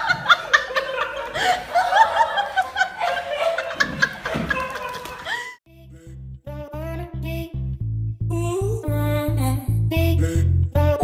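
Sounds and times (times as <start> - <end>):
person laughing: 0.0 - 5.6.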